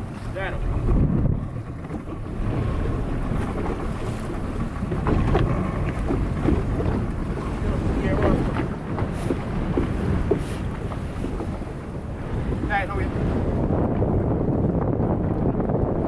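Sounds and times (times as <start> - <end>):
choppy sea rushing: 0.0 - 16.0
wind buffeting microphone: 0.0 - 16.0.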